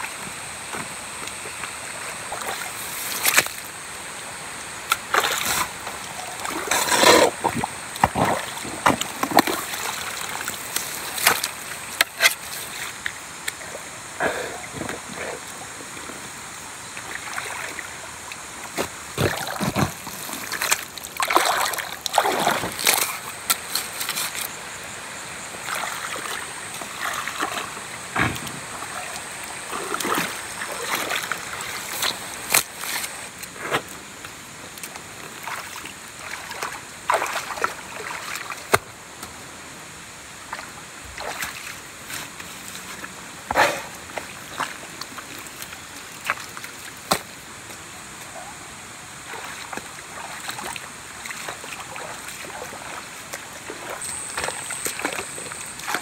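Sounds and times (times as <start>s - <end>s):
water splashing and sloshing: 0.0s - 56.0s.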